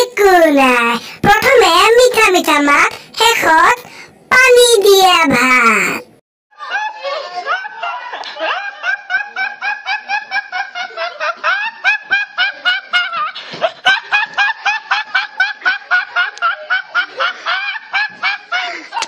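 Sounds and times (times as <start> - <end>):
young man laughing hard: 6.6 - 19.0.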